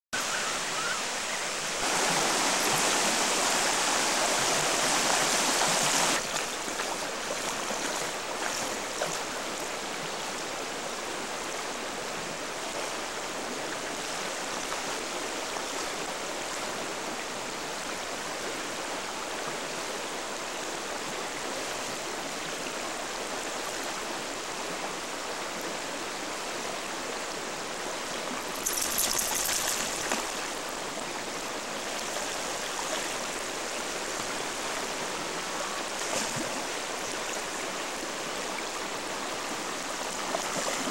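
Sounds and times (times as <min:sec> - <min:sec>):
river rapids rushing: 0:00.2 - 0:10.8, 0:28.3 - 0:40.9
dog wading through water: 0:28.5 - 0:30.6.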